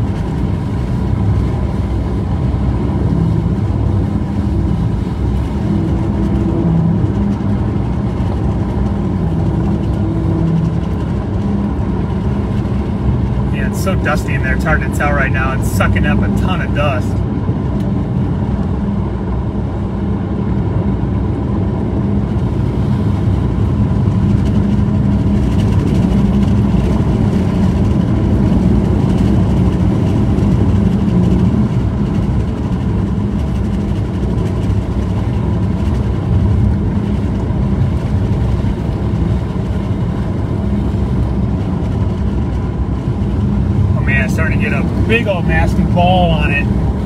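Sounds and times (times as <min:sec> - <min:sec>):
vehicle engine noise: 0:00.0 - 0:47.0
tyres on gravel road: 0:24.4 - 0:47.0.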